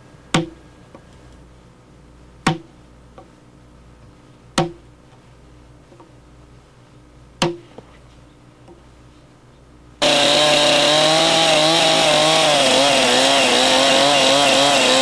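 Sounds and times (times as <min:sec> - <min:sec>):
mallet knocking on wood chisel: 0:00.3 - 0:00.6.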